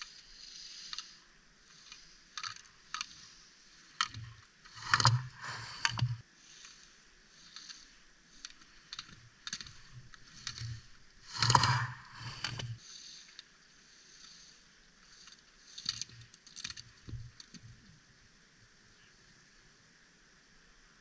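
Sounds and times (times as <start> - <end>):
sharp clicks: 0.0 - 6.8, 7.5 - 13.5
ski edges scraping on snow: 3.0 - 8.4, 9.6 - 13.2.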